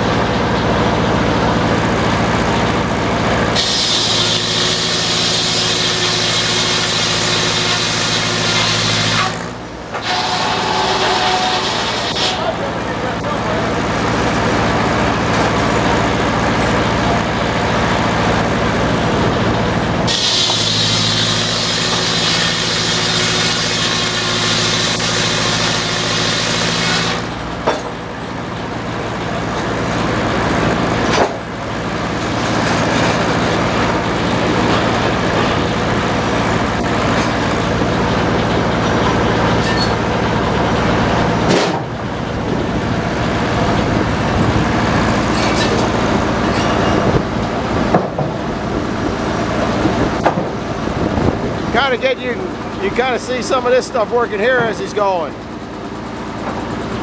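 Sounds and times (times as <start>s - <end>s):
circular saw cutting log: 3.4s - 17.3s, 20.1s - 28.3s.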